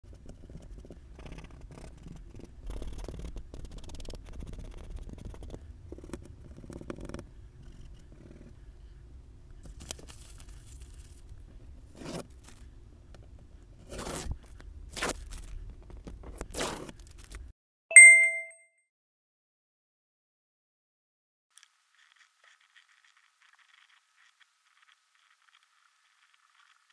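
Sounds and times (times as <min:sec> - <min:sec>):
oil pastel scratching on board: 0:00.1 - 0:08.6, 0:21.6 - 0:26.9
hands rustling tracing paper: 0:09.6 - 0:12.7.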